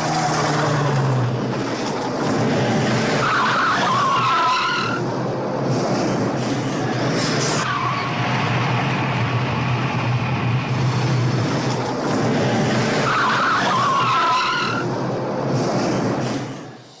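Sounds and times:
tyres squealing: 3.2 - 5.0, 13.0 - 14.9.

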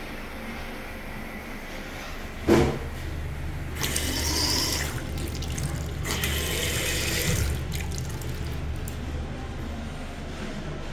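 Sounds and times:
faucet water splashing into sink: 3.8 - 9.0.

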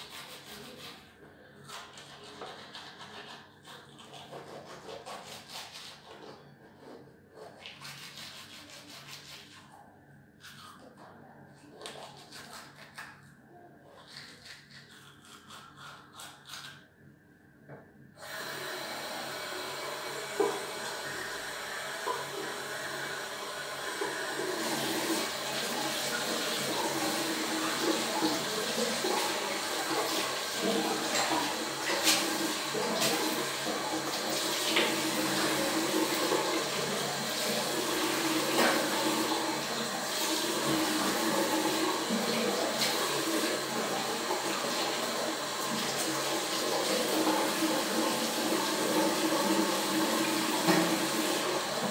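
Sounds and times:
toothbrush scrubbing: 0.0 - 9.8, 10.4 - 16.9, 24.0 - 51.9
tap water running into sink: 18.2 - 51.9.

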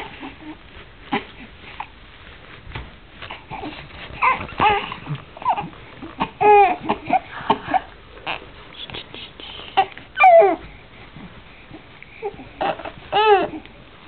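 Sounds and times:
babies cooing and whining: 3.3 - 8.6, 9.7 - 10.8, 11.7 - 13.8.

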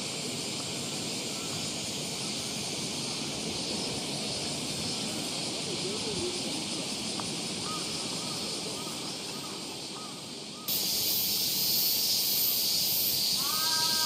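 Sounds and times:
cicada chorus hiss: 0.0 - 14.0
crows cawing: 7.6 - 10.8, 13.4 - 14.0.

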